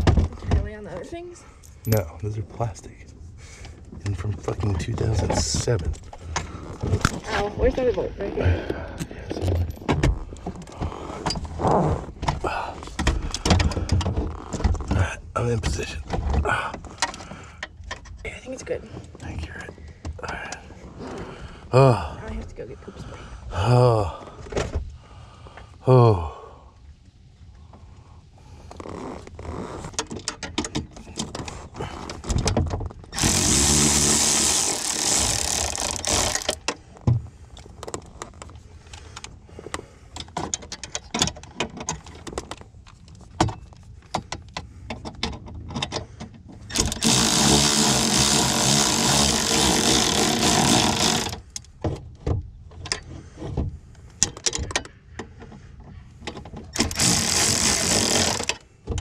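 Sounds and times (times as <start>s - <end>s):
tool handling clicks and knocks: 29.9s - 33.4s, 35.1s - 47.4s, 50.3s - 59.0s
power drill running: 33.2s - 36.6s, 46.7s - 51.4s, 56.8s - 58.5s.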